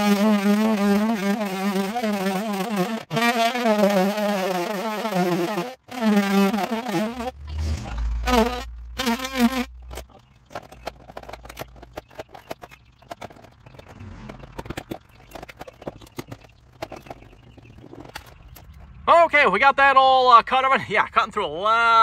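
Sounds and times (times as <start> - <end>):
cordless drill whining: 0.0 - 7.4, 8.2 - 9.7.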